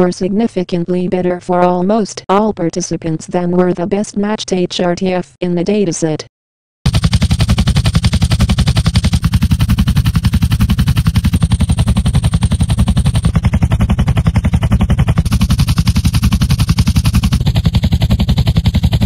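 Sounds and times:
sharp clicking pulses: 6.9s - 19.0s.

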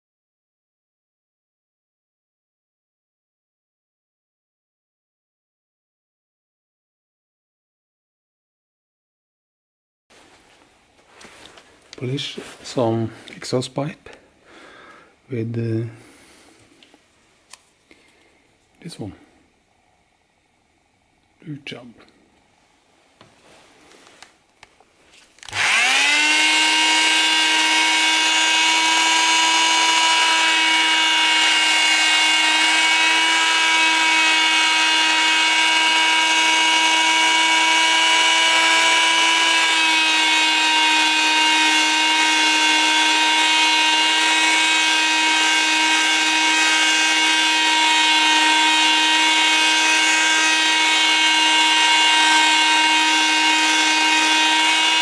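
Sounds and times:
electric sander whining: 25.4s - 55.0s.

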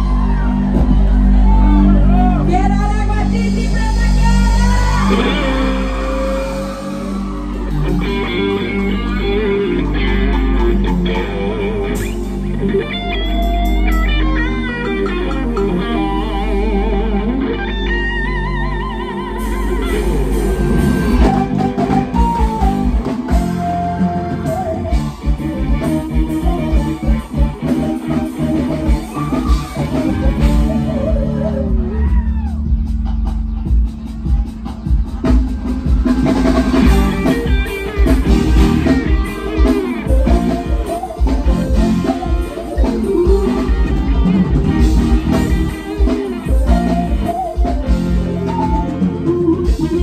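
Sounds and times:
electric guitar lead bending: 0.0s - 50.0s
live band playing: 0.0s - 50.0s
drum beat: 31.7s - 48.7s.

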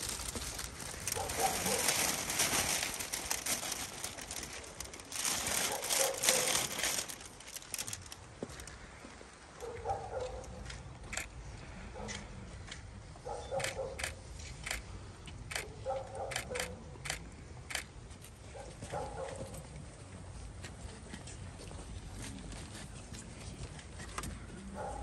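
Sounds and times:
footsteps on paving stones: 7.9s - 11.1s.

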